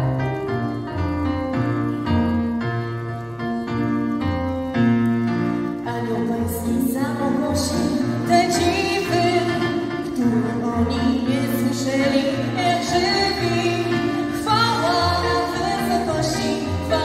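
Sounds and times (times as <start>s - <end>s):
piano-like chords: 0.0s - 17.0s
woman singing: 5.8s - 17.0s.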